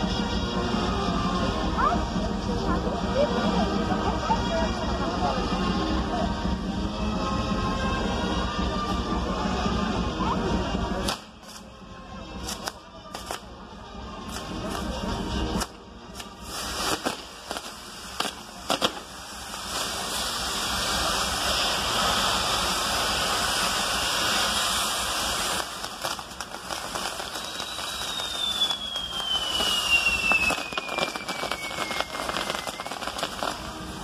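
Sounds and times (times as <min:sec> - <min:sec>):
fireworks crackling with bangs: 0:00.0 - 0:34.0
fireworks popping: 0:10.7 - 0:11.8, 0:12.4 - 0:13.6, 0:14.2 - 0:34.0
hissing sparks: 0:10.7 - 0:11.8, 0:12.4 - 0:13.6, 0:14.2 - 0:34.0
falling whistle: 0:27.1 - 0:33.4.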